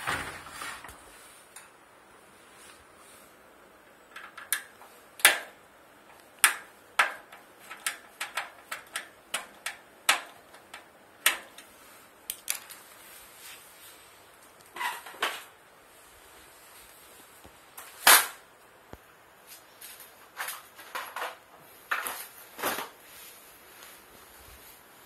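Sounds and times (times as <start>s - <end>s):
screwdriver clicking on sheet metal: 4.1s - 11.7s.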